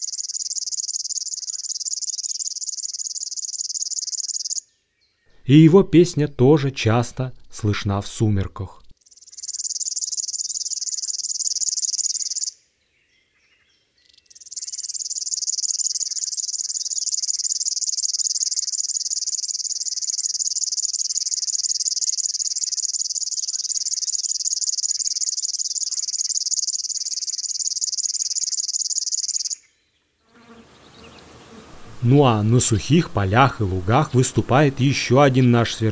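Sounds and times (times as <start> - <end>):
bird singing high-pitched reel: 0.0 - 4.7, 9.0 - 12.6, 14.0 - 29.7.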